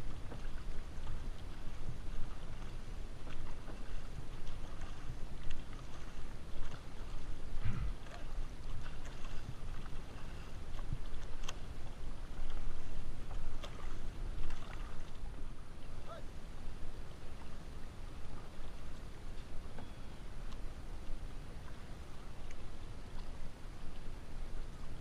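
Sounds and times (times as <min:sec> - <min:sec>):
steady low rumble: 0:00.0 - 0:19.2
paddles splashing in water: 0:00.0 - 0:25.0.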